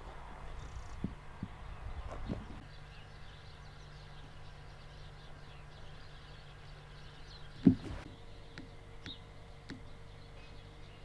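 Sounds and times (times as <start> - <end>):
steady low hum: 0.0 - 11.0
sharp thump: 7.6 - 8.1.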